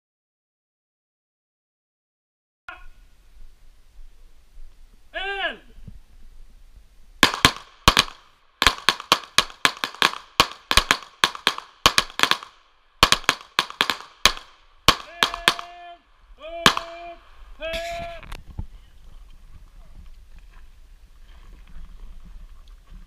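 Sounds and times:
rapid pistol fire: 0:07.2 - 0:15.7, 0:16.7 - 0:17.0.

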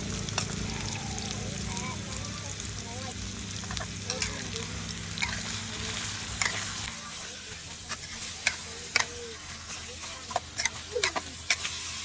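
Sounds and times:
meat sizzling in a wok: 0:00.0 - 0:12.0
metal spatula scraping a wok: 0:05.2 - 0:12.0.

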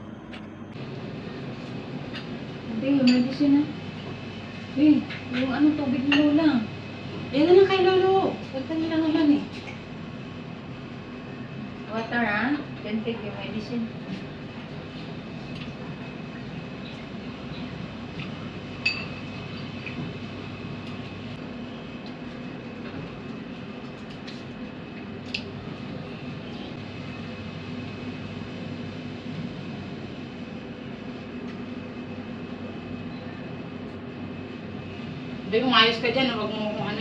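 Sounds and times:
room machinery hum: 0:00.0 - 0:37.0.

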